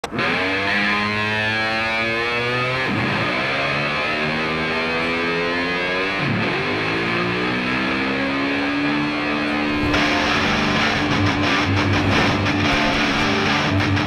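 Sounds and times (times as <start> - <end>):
distorted tone rising in pitch: 3.5 - 14.0.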